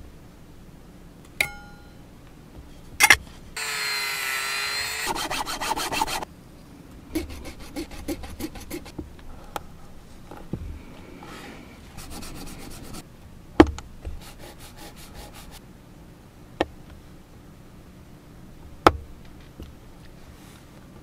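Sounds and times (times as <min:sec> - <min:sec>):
rotary tool grinding plastic: 0:03.6 - 0:06.2, 0:07.2 - 0:08.9
hand tool scraping plastic: 0:07.2 - 0:09.0.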